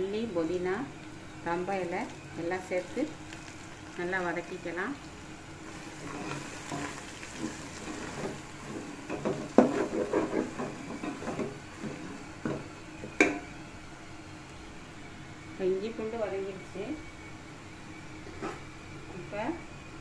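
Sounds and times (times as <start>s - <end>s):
frying oil sizzling: 0.0s - 16.8s
wooden spatula scraping metal pot: 6.0s - 12.6s.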